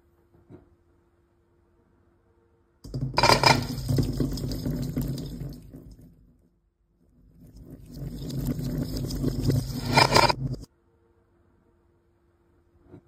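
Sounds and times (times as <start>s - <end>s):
water beads pattering into steel bowl: 2.9s - 6.1s, 7.5s - 10.7s.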